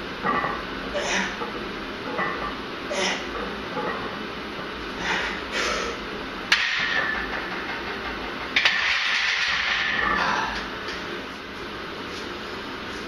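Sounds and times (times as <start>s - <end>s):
barbell clacking: 6.5s - 11.0s.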